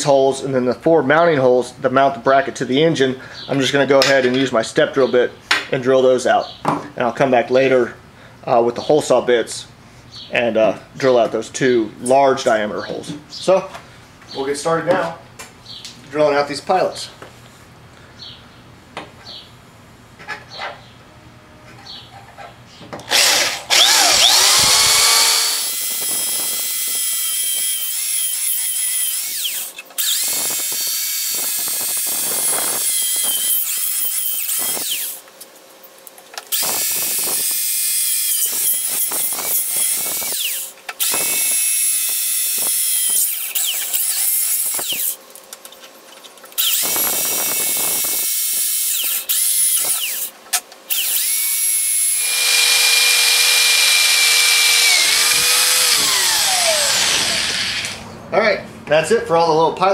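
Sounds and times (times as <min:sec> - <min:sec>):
electric drill whining: 0:23.1 - 0:35.2, 0:36.5 - 0:45.2, 0:46.6 - 0:50.3, 0:50.9 - 0:58.1.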